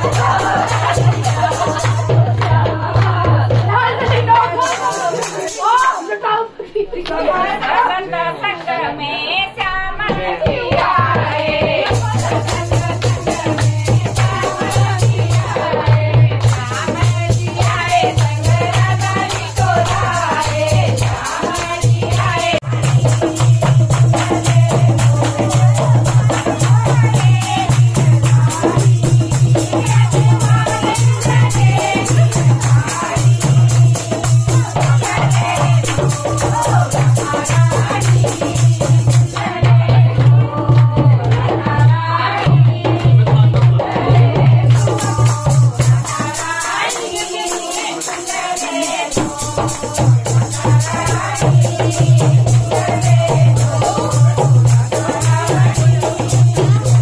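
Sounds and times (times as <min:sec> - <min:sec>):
rapid percussion: 0:00.0 - 0:06.3, 0:09.5 - 0:57.0
folk dance music with singing: 0:00.0 - 0:57.0.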